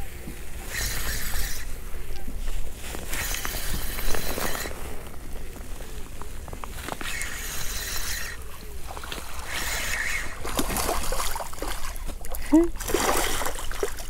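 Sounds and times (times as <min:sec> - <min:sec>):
fishing reel whirring: 0:00.6 - 0:01.9, 0:03.0 - 0:05.3, 0:06.1 - 0:12.0
fish splashing: 0:06.9 - 0:14.0.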